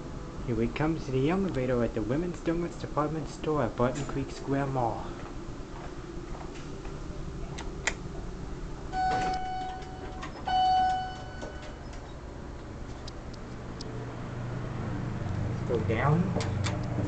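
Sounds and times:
elevator arrival chime: 8.9 - 12.2.

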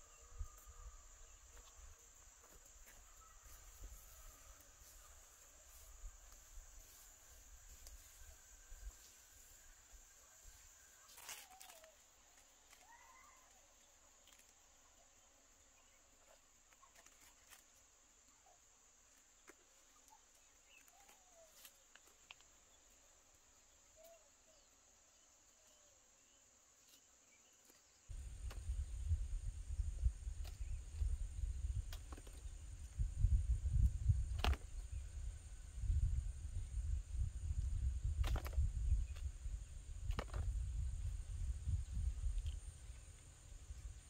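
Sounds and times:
high insect drone: 0.0 - 19.2, 28.0 - 44.0.

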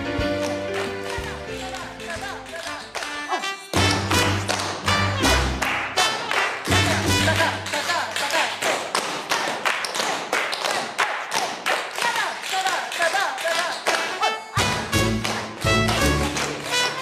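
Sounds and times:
music playing: 0.0 - 7.9, 14.0 - 17.0.

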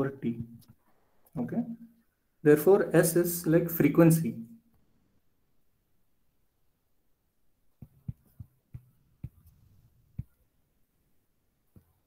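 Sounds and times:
stylus tapping on a screen: 7.8 - 10.5, 11.7 - 12.0.

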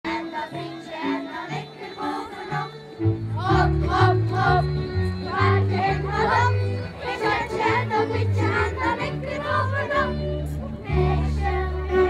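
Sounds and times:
folk dance music: 0.1 - 12.0.

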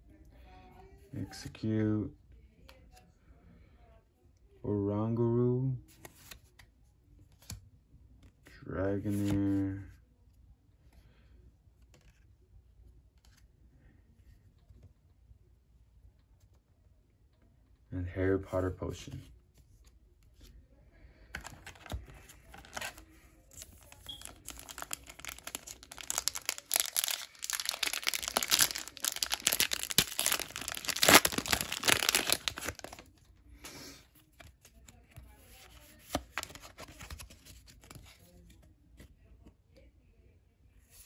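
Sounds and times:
foil pack tearing: 24.2 - 33.0
foil rustling: 24.2 - 33.0.

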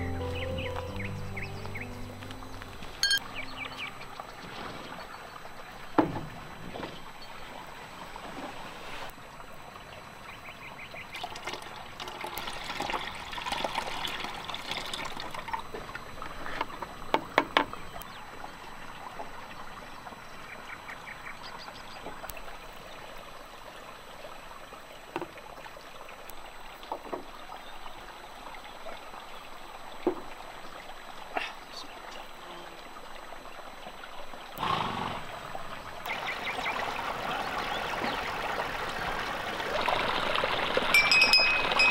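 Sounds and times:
milk pouring through strainer: 11.2 - 15.6.

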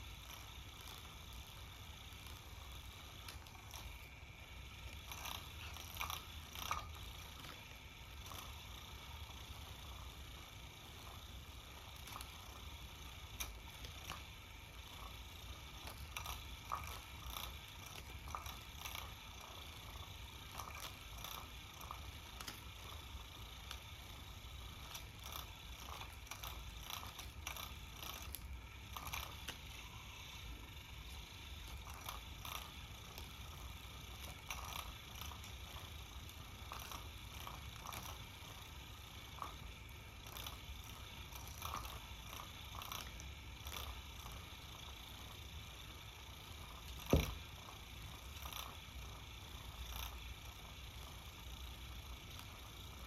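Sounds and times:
small motor whirring: 0.0 - 53.0.

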